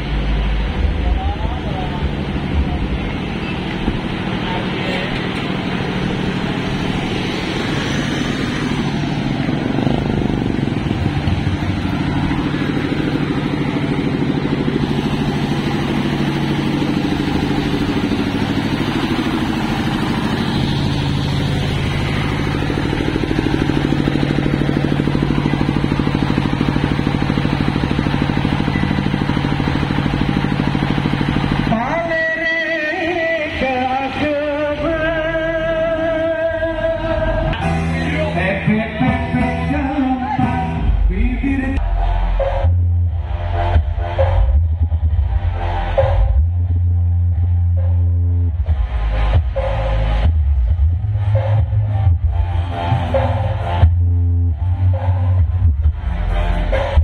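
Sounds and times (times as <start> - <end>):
motorcycles passing: 0.0 - 40.9
vehicle engines running: 0.0 - 57.0.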